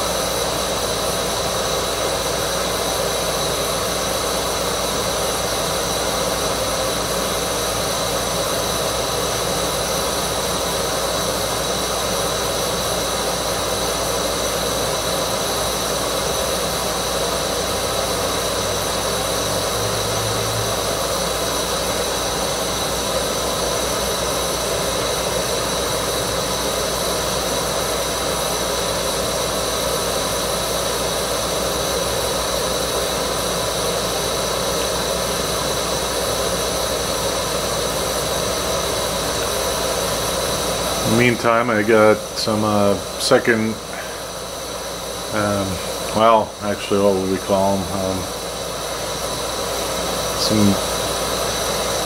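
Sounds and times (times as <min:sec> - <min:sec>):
gas stove burner roaring: 0:00.0 - 0:52.0.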